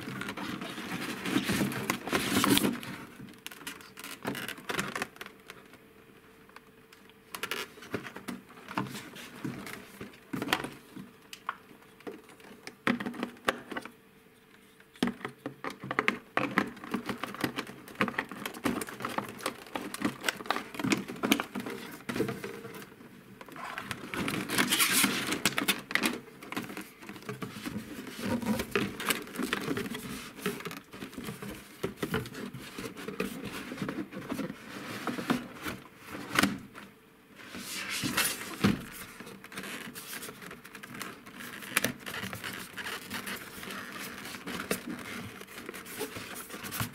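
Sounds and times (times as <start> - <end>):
plastic packaging crinkling: 23.5 - 34.5, 37.5 - 46.9.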